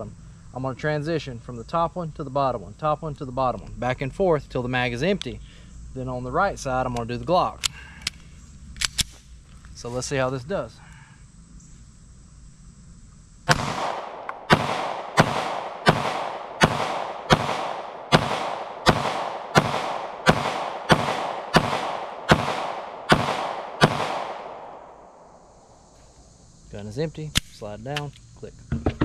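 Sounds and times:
pistol shots with ringing echo: 0:13.5 - 0:25.3.

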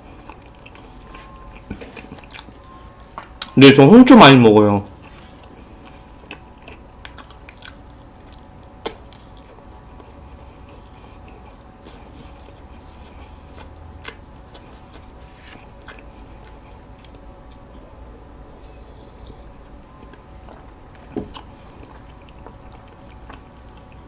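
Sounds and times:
chewing mouth sounds: 0:00.0 - 0:02.6, 0:05.0 - 0:17.7, 0:18.6 - 0:24.0.

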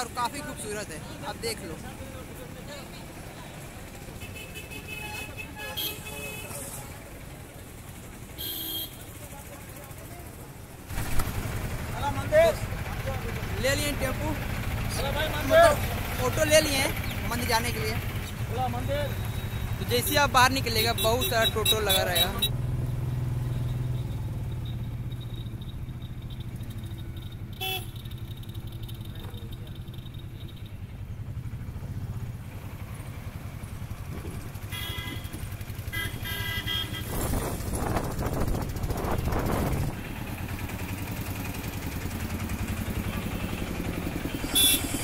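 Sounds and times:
auto-rickshaw engine puttering: 0:00.0 - 0:45.0
vehicle horn toots: 0:04.2 - 0:06.8, 0:08.4 - 0:09.1, 0:27.6 - 0:28.2, 0:34.6 - 0:37.3, 0:44.4 - 0:45.0.

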